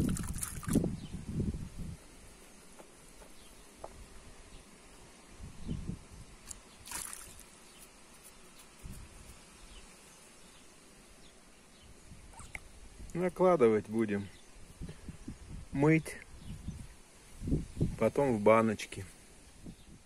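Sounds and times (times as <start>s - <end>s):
soft water splashes: 0.0s - 0.8s, 6.5s - 7.6s
wet rustling of fruit: 0.0s - 0.9s, 6.4s - 9.4s.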